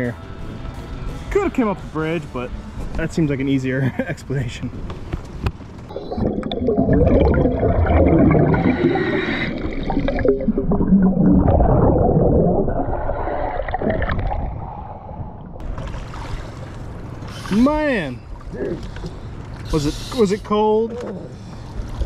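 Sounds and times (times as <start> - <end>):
underwater air bubbles gurgling: 5.9 - 15.6.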